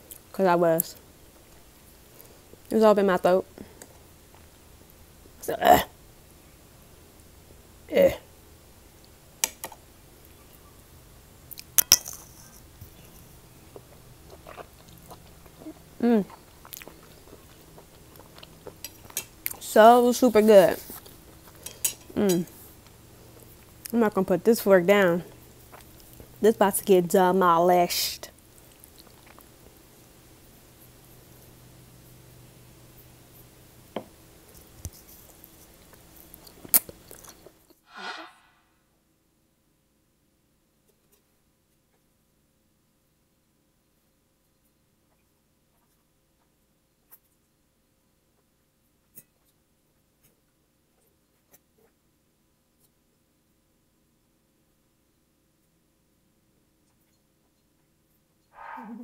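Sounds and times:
person chewing noodles: 0:11.5 - 0:19.6, 0:28.5 - 0:29.7, 0:35.3 - 0:37.5.

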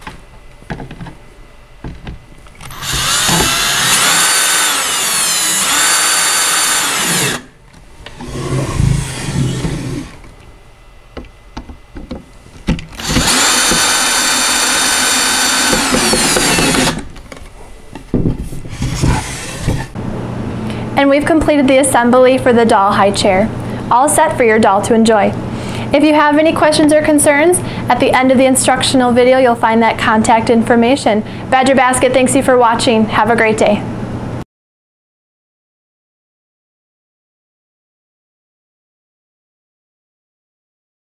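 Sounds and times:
cordless drill driving screws: 0:02.6 - 0:07.5, 0:08.1 - 0:10.2, 0:13.0 - 0:17.1, 0:18.8 - 0:19.9.

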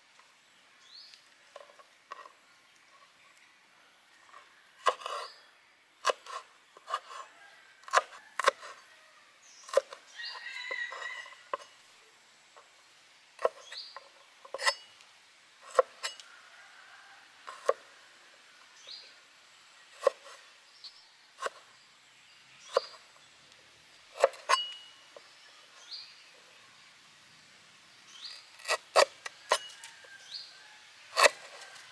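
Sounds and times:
cleaver chopping on wooden board: 0:04.8 - 0:05.3, 0:07.8 - 0:08.7, 0:09.7 - 0:10.0, 0:15.7 - 0:16.2, 0:24.2 - 0:24.8, 0:31.2 - 0:31.6.

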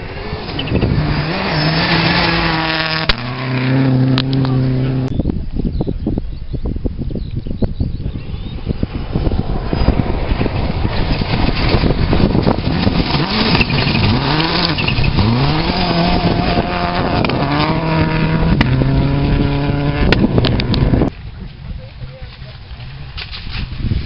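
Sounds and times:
gravel rushing under tyres: 0:00.0 - 0:04.6, 0:08.6 - 0:24.0
rally car engine revving: 0:00.0 - 0:05.2, 0:08.8 - 0:21.1.

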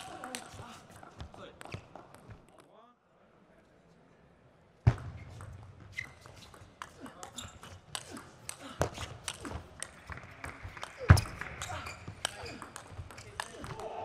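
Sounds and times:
ping pong ball clicking on bats: 0:00.0 - 0:02.3, 0:12.2 - 0:14.0.

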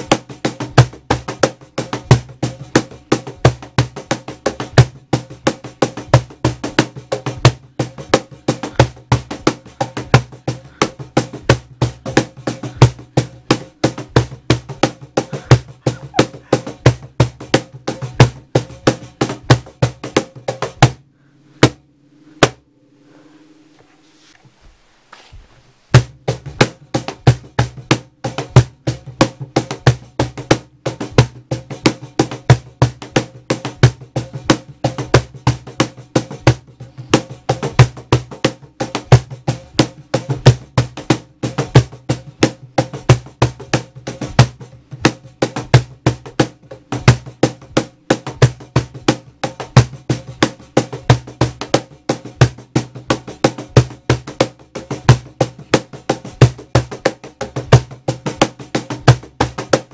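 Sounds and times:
clicky percussive beat: 0:00.0 - 0:21.0
steady low tone: 0:21.0 - 0:24.8.

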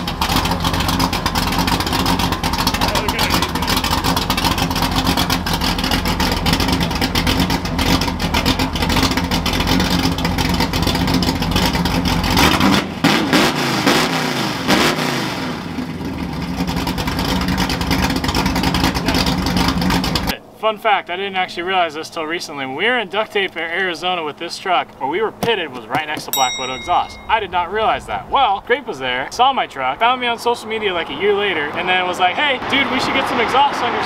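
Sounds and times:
pickup engine revving: 0:00.0 - 0:20.3.

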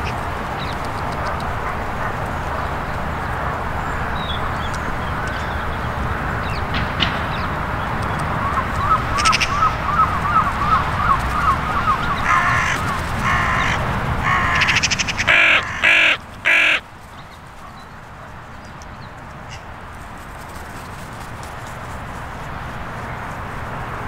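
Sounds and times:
crows cawing: 0:08.4 - 0:17.0.

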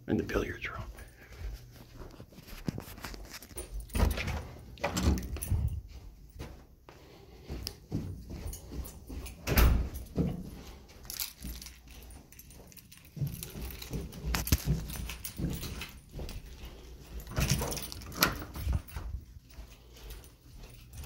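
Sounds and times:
footsteps on carpeted stairs: 0:00.6 - 0:21.0
light metallic jingling: 0:03.2 - 0:06.4, 0:07.6 - 0:21.0.

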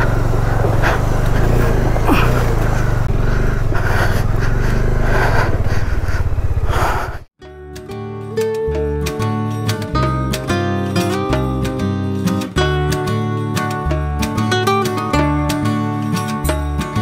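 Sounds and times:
motorcycle engine running slowly: 0:00.0 - 0:07.3
acoustic guitar music: 0:07.4 - 0:17.0.

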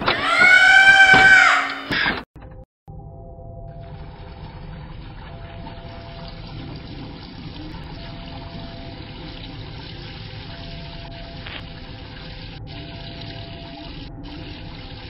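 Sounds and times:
liquid trickling: 0:03.7 - 0:15.0.

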